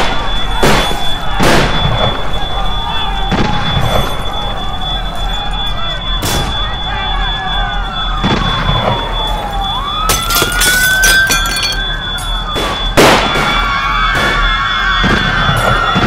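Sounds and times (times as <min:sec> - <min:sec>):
wailing sirens: 0:00.0 - 0:16.0
clattering crashes: 0:10.1 - 0:12.0.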